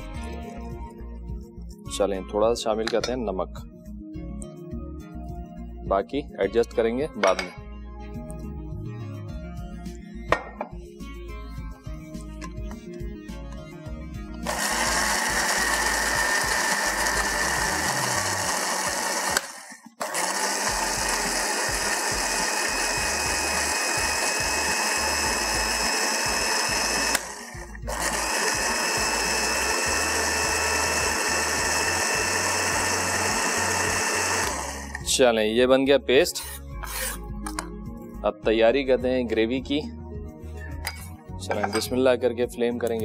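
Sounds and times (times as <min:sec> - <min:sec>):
blender grinding with a whine: 0:14.4 - 0:35.1.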